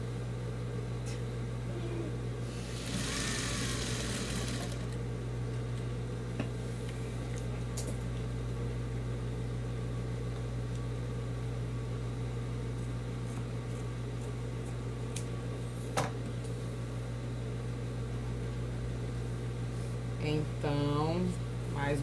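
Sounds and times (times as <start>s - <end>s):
sewing machine motor humming: 2.5s - 5.0s.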